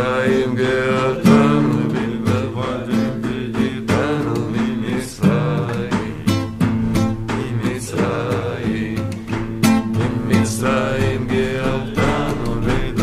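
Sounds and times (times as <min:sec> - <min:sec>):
acoustic guitar strumming: 0:00.0 - 0:13.0
man singing: 0:00.0 - 0:13.0.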